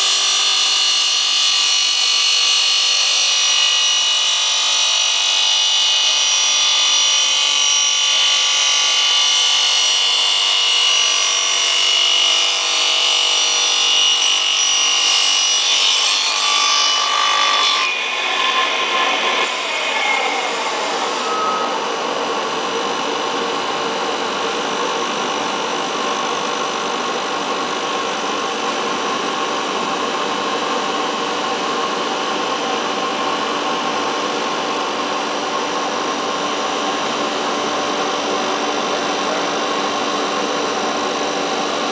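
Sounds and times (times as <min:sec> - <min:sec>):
circular saw cutting foam board: 0:00.0 - 0:26.7.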